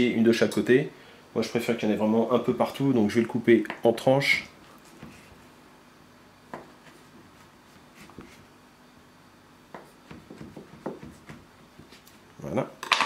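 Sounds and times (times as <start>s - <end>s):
knife knocking on cutting board: 9.7s - 11.4s.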